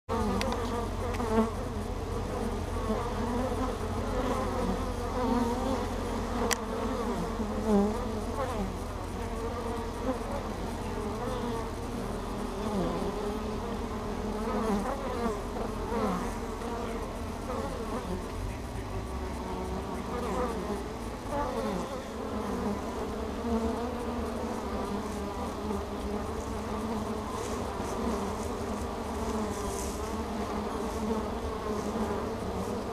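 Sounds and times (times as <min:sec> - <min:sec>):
honey bees buzzing: 0:00.1 - 0:32.9.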